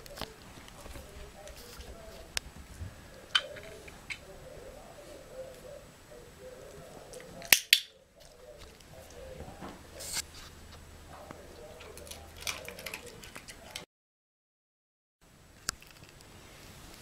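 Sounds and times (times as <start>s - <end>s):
soft rustles: 0.0s - 4.3s.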